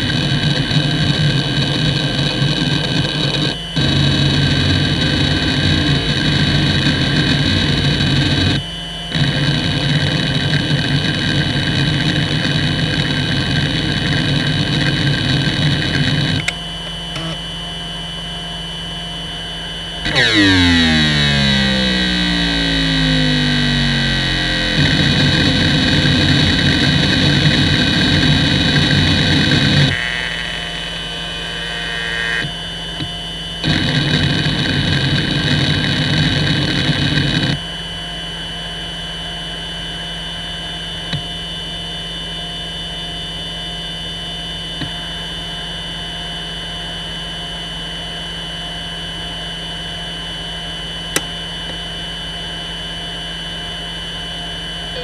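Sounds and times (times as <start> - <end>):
hard drive seeking: 0.0 - 17.4, 20.0 - 37.6, 44.8 - 45.7
hard drive spindle whine: 0.0 - 55.0.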